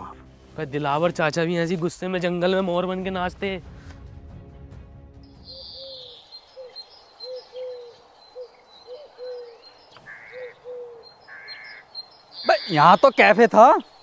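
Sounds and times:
bird calling low notes: 0:05.3 - 0:13.9
faint high bird chirps: 0:05.4 - 0:14.0.

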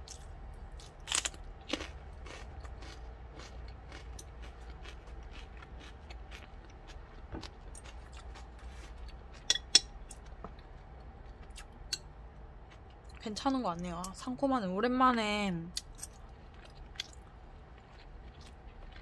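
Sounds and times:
chewing crunches: 0:00.0 - 0:11.8, 0:15.8 - 0:19.0.

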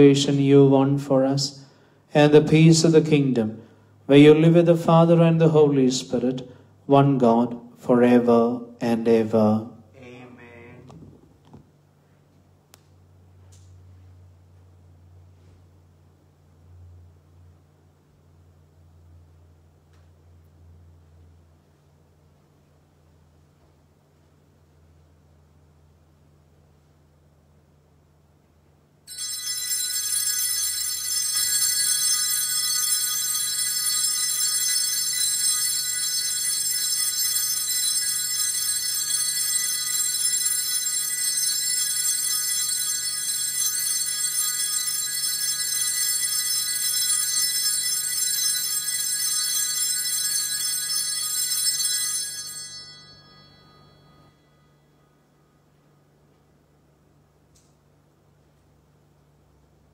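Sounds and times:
altar bells ringing: 0:29.1 - 0:55.1.

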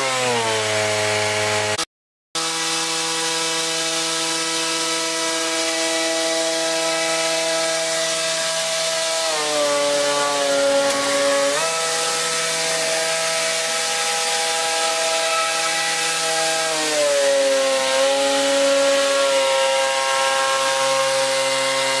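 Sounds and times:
model propeller buzzing whine: 0:02.4 - 0:16.7, 0:19.2 - 0:22.0.

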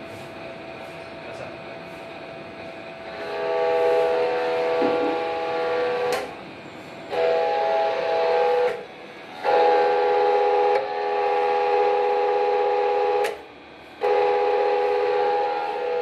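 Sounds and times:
hydraulic pump whining: 0:03.0 - 0:16.0.

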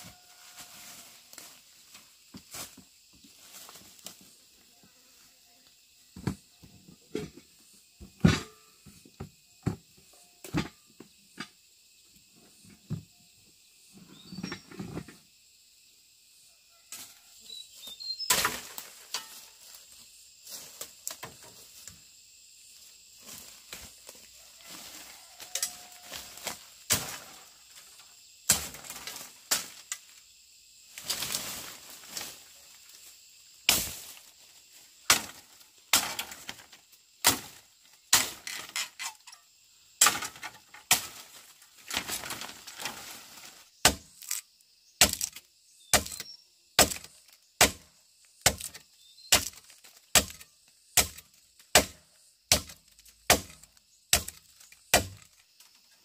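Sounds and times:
chopping strikes on wood: 0:43.8 - 0:44.3, 0:45.0 - 0:50.4, 0:51.0 - 0:55.3.

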